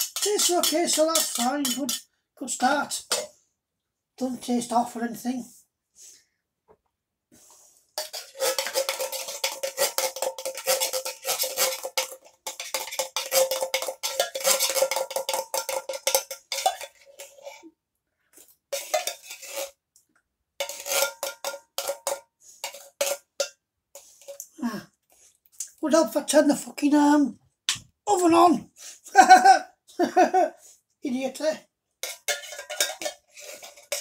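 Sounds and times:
spoon scraping tin can: 0:00.0 - 0:02.1, 0:08.0 - 0:17.7, 0:18.4 - 0:19.8, 0:20.6 - 0:24.6, 0:32.0 - 0:34.0.

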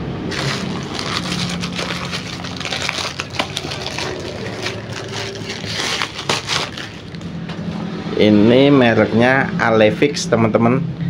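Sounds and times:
plastic bag crinkling and tearing: 0:00.3 - 0:07.3.

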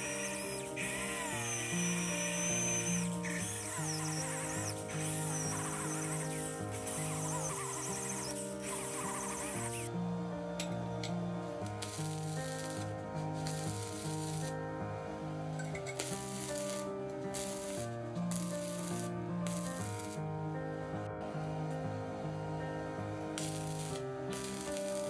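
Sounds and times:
arc welding crackling hiss: 0:00.0 - 0:09.9, 0:11.6 - 0:14.6, 0:15.6 - 0:20.2, 0:23.3 - 0:25.0.

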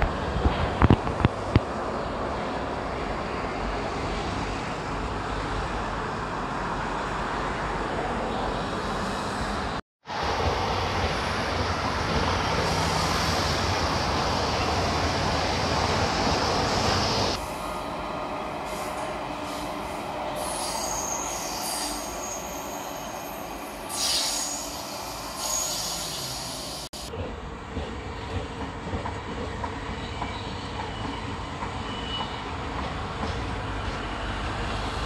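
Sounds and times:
hiss: 0:23.9 - 0:27.1.

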